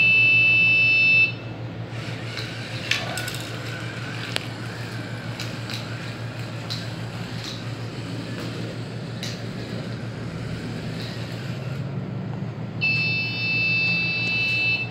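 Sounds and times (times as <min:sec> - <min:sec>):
high-pitched buzzer tone: 0:00.0 - 0:01.5, 0:12.8 - 0:14.9
small motors whirring: 0:01.9 - 0:12.0.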